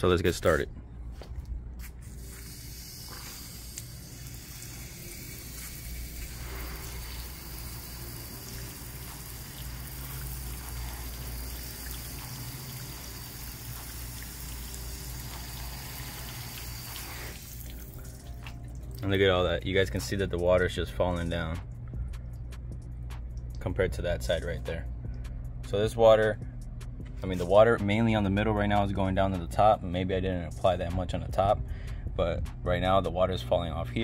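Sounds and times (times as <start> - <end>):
hose spraying water on glass: 1.8 - 18.5.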